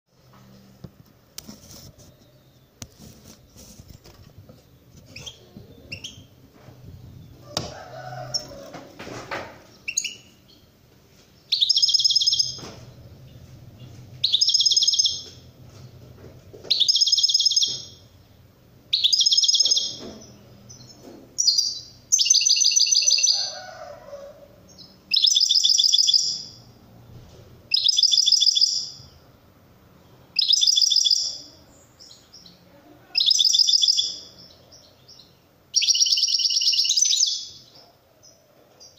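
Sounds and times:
bird chirps: 4.9 - 6.4, 9.7 - 10.7, 11.4 - 15.4, 16.7 - 18.1, 18.9 - 23.8, 24.7 - 26.7, 27.7 - 29.2, 30.0 - 32.6, 33.2 - 38.9
goldfinch trilling song: 14.2 - 15.3, 16.7 - 18.0, 18.9 - 20.0, 21.4 - 23.4, 27.7 - 29.0, 33.2 - 37.7.

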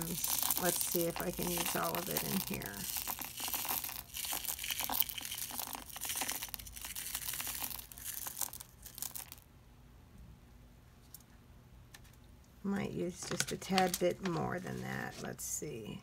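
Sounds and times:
plastic bag crinkling: 0.0 - 9.4, 13.2 - 14.9
stone chips shaken out: 0.0 - 9.4.

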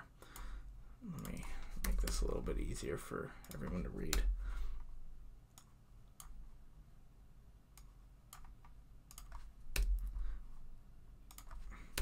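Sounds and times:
computer keyboard typing: 1.1 - 2.4, 3.4 - 4.4, 7.8 - 10.2, 11.3 - 12.0.

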